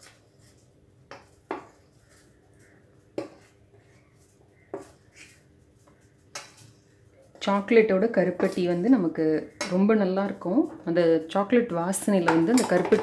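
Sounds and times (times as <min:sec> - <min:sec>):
flour scraping: 0:00.0 - 0:10.6
metal spoon knocking steel bowl: 0:12.0 - 0:13.0.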